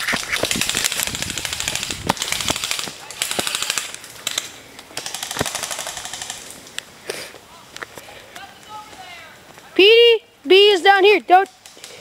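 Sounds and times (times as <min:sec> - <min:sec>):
airsoft guns firing bursts: 0:00.4 - 0:06.5.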